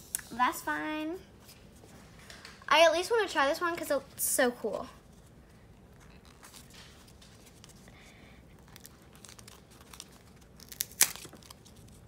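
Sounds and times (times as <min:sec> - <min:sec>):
slime crinkling and crackling: 0:05.8 - 0:12.0.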